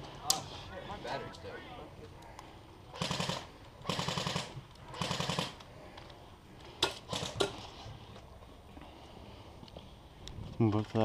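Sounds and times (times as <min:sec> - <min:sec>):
airsoft gun full-auto bursts: 0:02.9 - 0:05.6, 0:06.8 - 0:07.5
sharp gun clicks: 0:02.9 - 0:05.7, 0:06.8 - 0:07.6.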